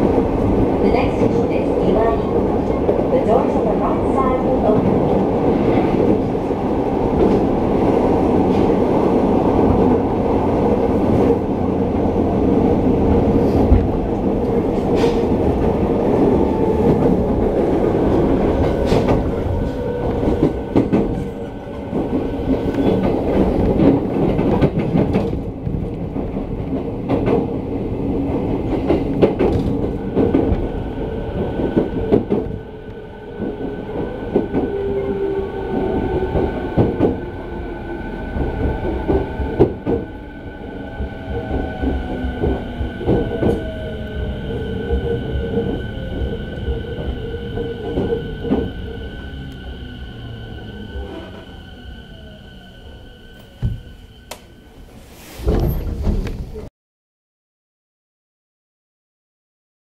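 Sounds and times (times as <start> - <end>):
train wheels rumbling on rails: 0.0 - 56.7
rail-joint clicks: 53.4 - 54.5.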